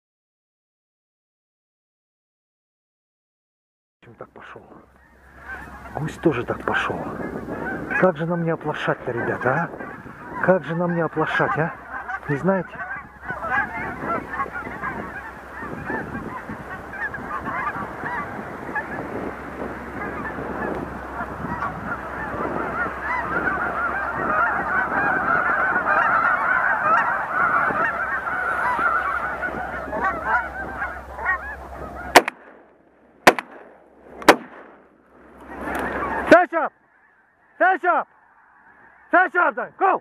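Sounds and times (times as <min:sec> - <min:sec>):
snow geese honking: 0:04.4 - 0:40.0
shotgun shots: 0:32.1 - 0:34.9.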